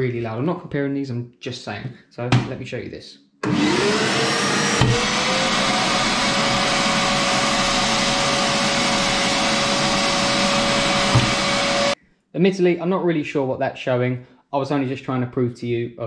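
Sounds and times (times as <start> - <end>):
vacuum motor whine: 3.4 - 12.0.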